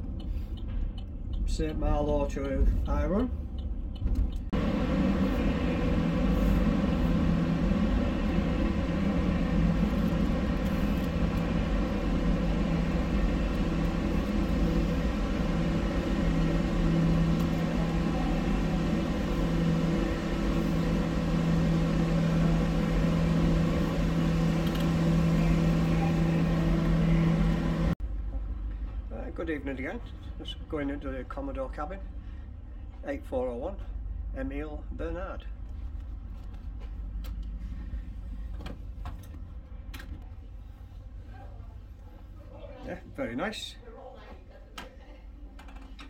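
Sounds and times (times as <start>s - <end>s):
machinery hum and rumble: 0.0s - 46.0s
low droning tone: 4.5s - 28.9s.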